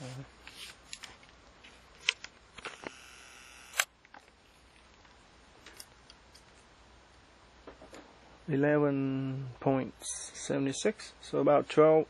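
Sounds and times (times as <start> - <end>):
camera zoom motor whir: 2.6 - 3.9.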